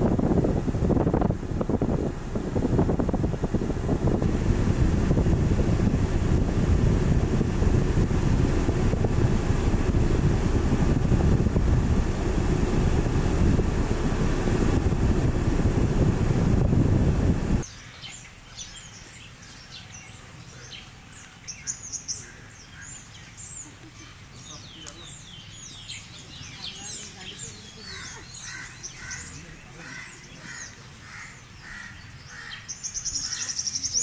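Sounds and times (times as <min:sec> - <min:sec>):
wind rumble on microphone: 0:00.0 - 0:17.7
small birds chirping: 0:17.6 - 0:34.0.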